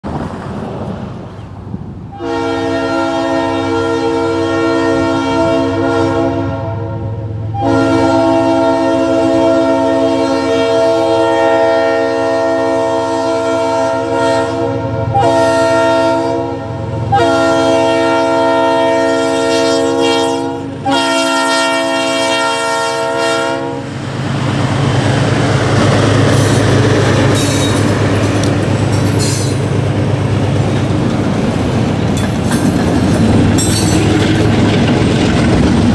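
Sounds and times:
train rumbling past: 0.0 - 35.9
locomotive air horn: 2.1 - 23.9
wheels clacking over rail joints: 23.9 - 35.9.

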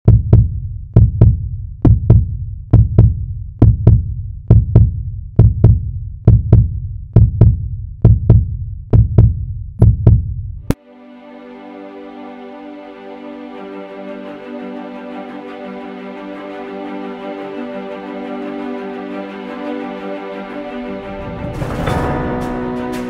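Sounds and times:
heartbeat thumps: 0.0 - 10.7.

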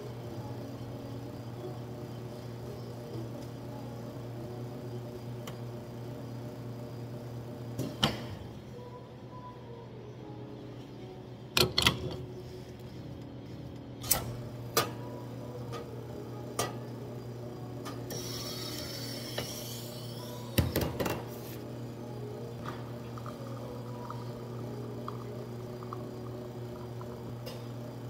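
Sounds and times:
espresso machine hissing: 0.0 - 8.4, 14.3 - 28.0
machine humming: 12.2 - 28.0.

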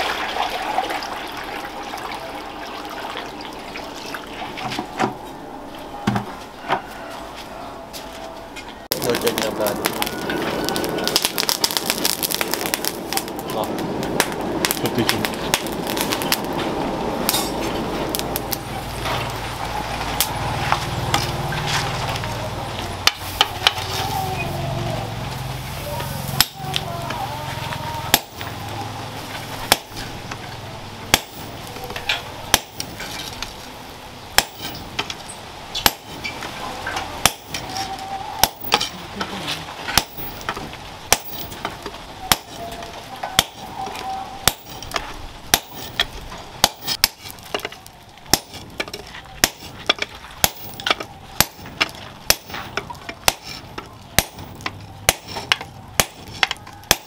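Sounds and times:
hammer striking hot steel on anvil: 17.2 - 18.5, 26.4 - 26.7, 28.1 - 28.5, 29.7 - 30.1, 31.1 - 33.3, 34.4 - 35.2, 35.8 - 36.4, 37.2 - 39.0, 39.9 - 43.7, 44.4 - 57.0.

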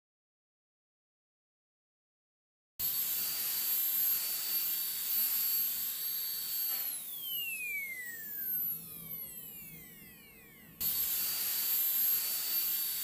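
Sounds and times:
dental drill whining: 2.8 - 13.0.

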